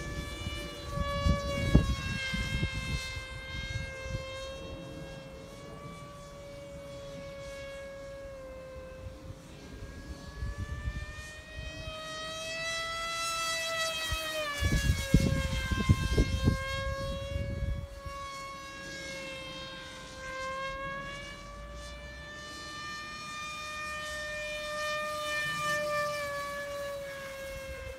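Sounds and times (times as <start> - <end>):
wind rumble on microphone: 0.0 - 7.3, 8.8 - 12.0, 14.0 - 18.5
propeller motor whine: 0.0 - 27.9.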